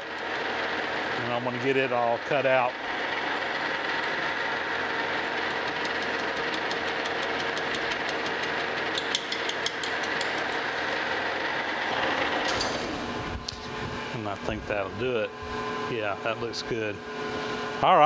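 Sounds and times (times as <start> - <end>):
regular ticking of cutting tool: 0.0 - 1.0, 5.1 - 10.8
metal lathe humming: 0.0 - 17.9.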